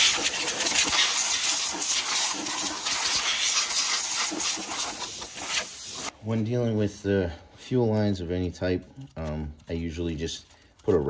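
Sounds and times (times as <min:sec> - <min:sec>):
compressed air blow gun hissing: 0:00.0 - 0:06.1.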